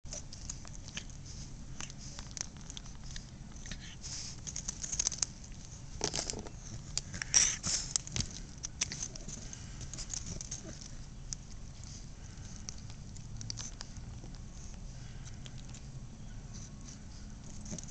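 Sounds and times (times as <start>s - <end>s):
puppy chewing rubber toy: 0.0s - 17.9s.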